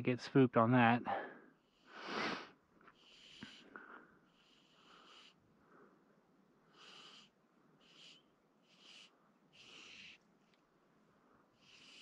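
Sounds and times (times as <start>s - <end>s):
person breathing: 1.1s - 6.1s.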